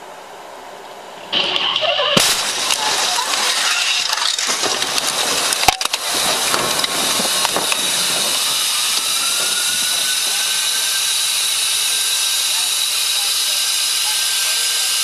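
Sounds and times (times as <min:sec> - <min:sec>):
faint rising whine: 0:00.0 - 0:14.7
loud steady hiss: 0:00.0 - 0:15.0
sharp bang: 0:01.3 - 0:10.4.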